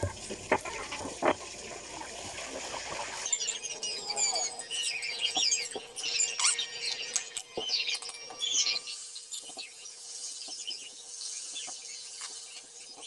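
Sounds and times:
frying hiss with clicks: 0:00.0 - 0:04.6, 0:05.2 - 0:13.0
small birds chirping: 0:03.0 - 0:13.0.

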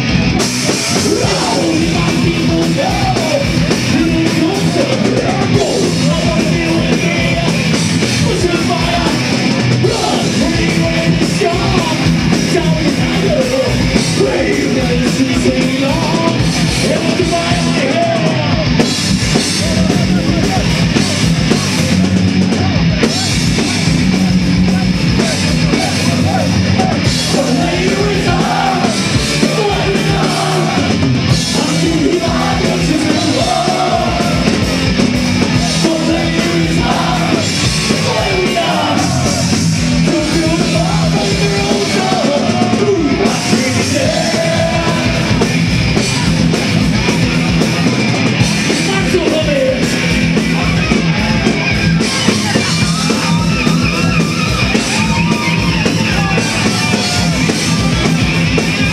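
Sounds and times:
heavy rock music: 0:00.0 - 0:58.9
person singing: 0:00.8 - 0:18.7, 0:25.2 - 0:34.7, 0:35.4 - 0:46.5.

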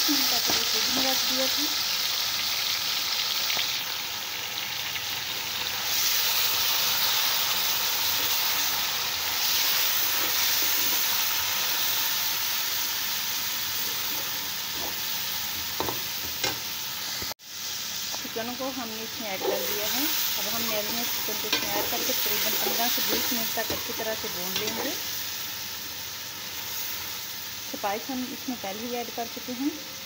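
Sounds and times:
food sizzling in hot oil: 0:00.0 - 0:30.0
metal spoon stirring in pot: 0:19.3 - 0:20.0, 0:20.7 - 0:25.0.

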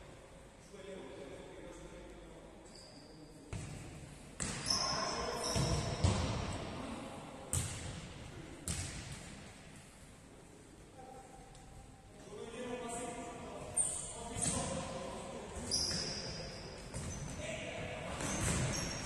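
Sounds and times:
ball bouncing on court floor: 0:03.5 - 0:04.8, 0:05.4 - 0:06.6, 0:07.5 - 0:09.5, 0:16.9 - 0:17.3, 0:18.1 - 0:19.0
short high squeak: 0:15.7 - 0:16.6.

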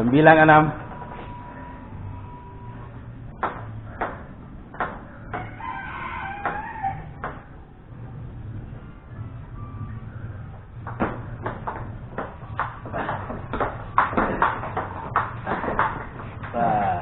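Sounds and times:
rooster crowing: 0:05.2 - 0:07.4.

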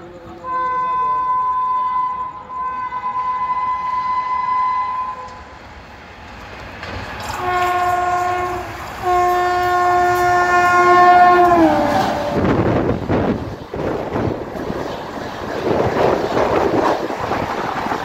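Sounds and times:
train rushing past: 0:00.0 - 0:18.0
train horn blasts: 0:00.4 - 0:05.5, 0:07.3 - 0:12.6.

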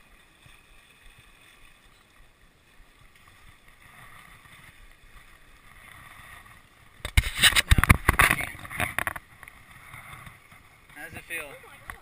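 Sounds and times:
stream running over rocks: 0:00.0 - 0:12.0
wind rumble on microphone: 0:03.8 - 0:12.0.

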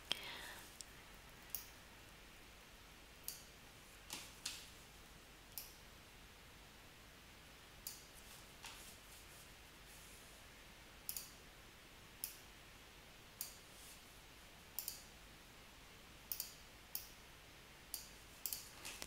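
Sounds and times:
computer mouse clicks: 0:11.1 - 0:11.4, 0:14.8 - 0:15.1, 0:16.3 - 0:17.1, 0:17.9 - 0:19.0.

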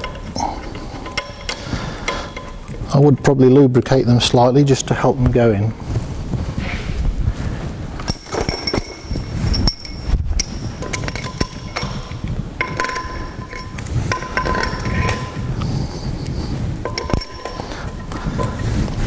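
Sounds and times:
metal studs clinking on metal: 0:00.0 - 0:03.6, 0:08.0 - 0:15.7, 0:16.8 - 0:18.6.

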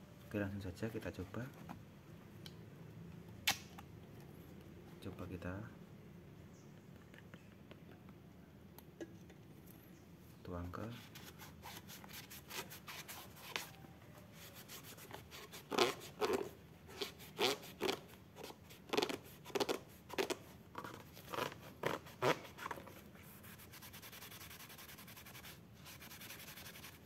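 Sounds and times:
cloth rubbing a bicycle saddle: 0:10.8 - 0:27.0.

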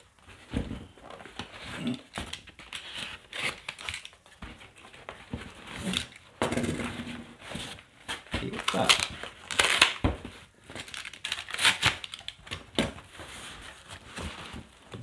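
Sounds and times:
cardboard being cut and torn: 0:01.6 - 0:04.0, 0:11.0 - 0:12.2.

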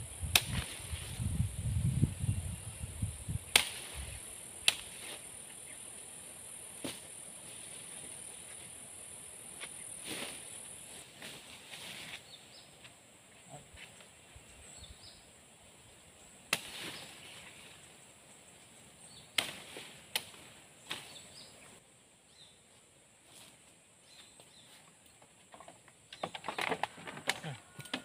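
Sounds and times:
leafy branches rustling: 0:00.2 - 0:12.8, 0:16.4 - 0:21.8
branches snapping: 0:00.3 - 0:01.0, 0:03.5 - 0:05.0, 0:16.5 - 0:17.2, 0:19.3 - 0:21.2.

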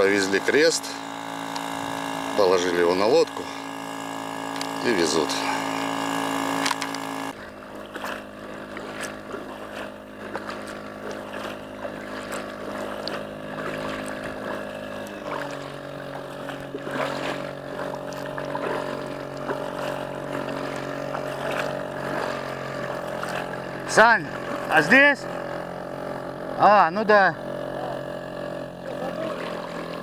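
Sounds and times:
small outboard motor running: 0:00.0 - 0:30.0
paddle splashes and knocks: 0:04.5 - 0:26.6, 0:28.9 - 0:30.0.

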